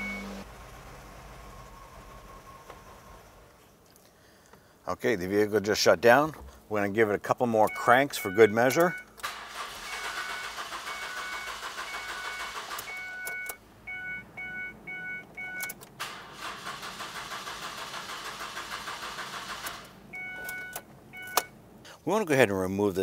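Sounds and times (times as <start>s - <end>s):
dashboard warning chime beeping: 0.0s - 0.4s, 7.7s - 9.1s, 9.8s - 15.8s, 20.1s - 21.6s
starter motor cranking engine: 9.2s - 13.0s, 16.0s - 20.0s.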